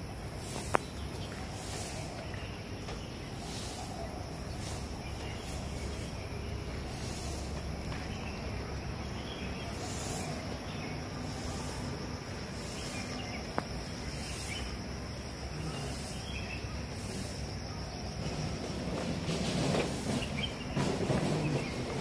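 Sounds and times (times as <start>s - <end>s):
high insect drone: 0.0s - 22.0s
steady outdoor background noise: 0.0s - 22.0s.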